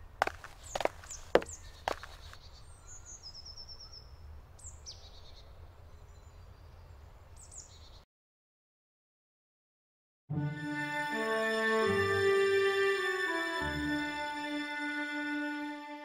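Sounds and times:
songbirds singing: 0.0 - 8.0.

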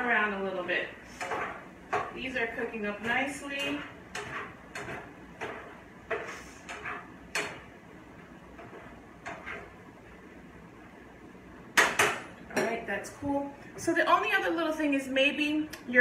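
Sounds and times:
utensil scraping a frying pan: 0.0 - 10.2.

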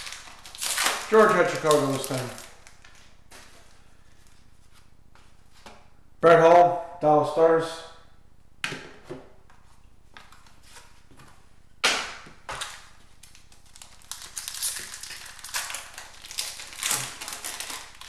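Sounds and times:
wrapper crackling and crinkling: 0.0 - 4.4, 12.6 - 18.0.

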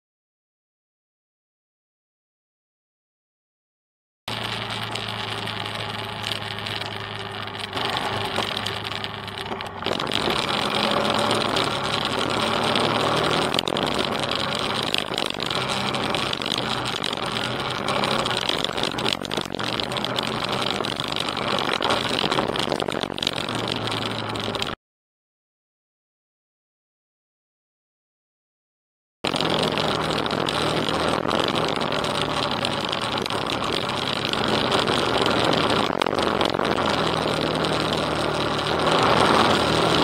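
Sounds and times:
tyre noise on gravel: 4.3 - 24.7
motorcycle engine running: 4.3 - 24.8, 29.2 - 40.0.

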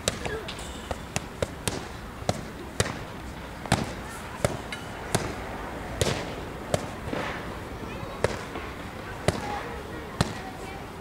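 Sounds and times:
boxing gloves hitting mitts: 0.0 - 7.4, 8.2 - 8.6, 9.2 - 9.6.

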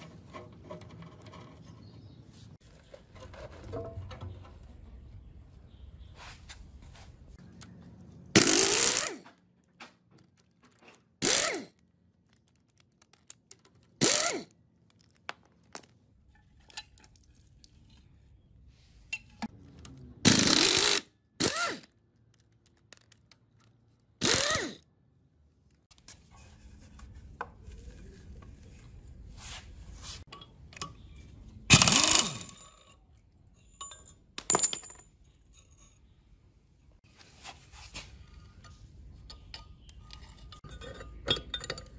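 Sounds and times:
pneumatic impact wrench bursts: 8.4 - 9.2, 11.2 - 11.7, 14.0 - 14.5, 20.2 - 21.9, 24.2 - 24.8, 31.7 - 32.6.

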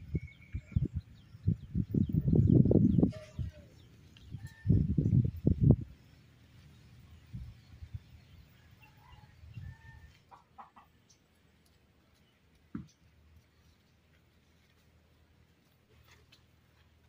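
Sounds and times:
chickens clucking: 9.5 - 11.3.

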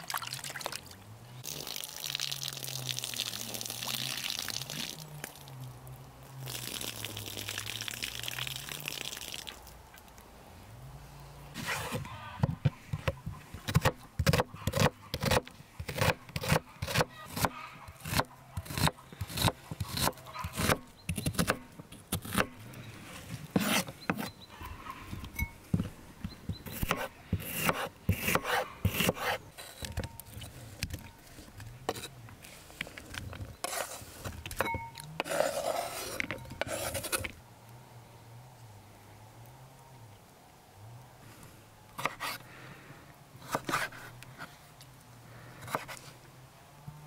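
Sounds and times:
knife chopping onion on board: 12.4 - 21.6
knife scraping into glass bowl: 34.6 - 37.3.

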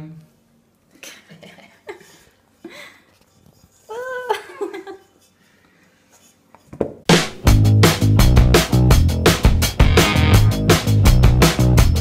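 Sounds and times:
music with heavy drum beat and bass: 7.1 - 12.0.

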